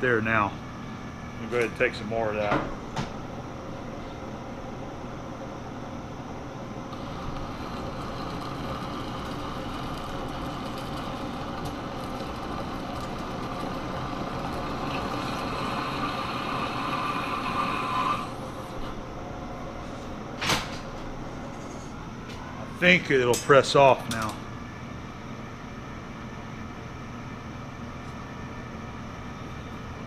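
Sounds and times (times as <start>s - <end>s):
lathe cutting metal: 6.9s - 18.4s.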